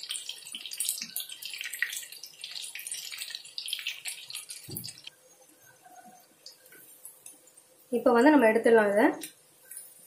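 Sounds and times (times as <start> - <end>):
chicken deep-frying in oil: 0.0 - 5.1.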